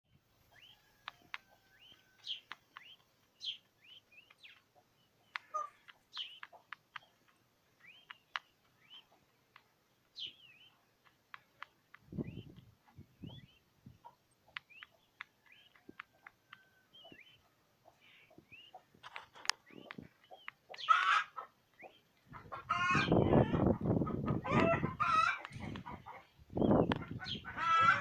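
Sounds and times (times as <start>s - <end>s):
chicks peeping: 0.4s - 28.0s
beaks pecking plastic tray: 0.6s - 12.1s.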